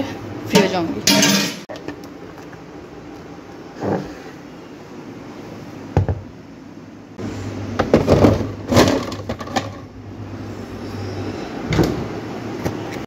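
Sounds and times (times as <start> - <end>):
refrigerator low hum: 0.0 - 13.0
clatter against shelf and bottles: 0.6 - 2.6, 7.8 - 9.9.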